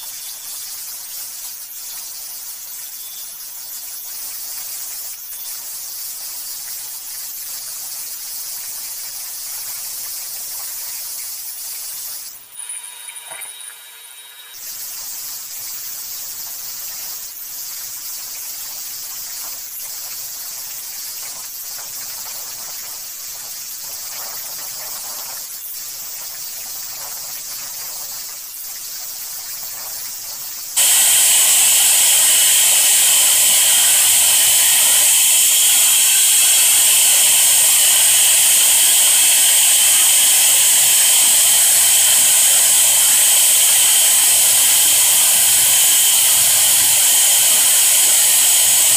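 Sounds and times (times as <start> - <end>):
high-pitched motor whine: 0.0 - 5.6, 12.5 - 15.8, 30.8 - 48.9
machine hiss: 9.9 - 48.9.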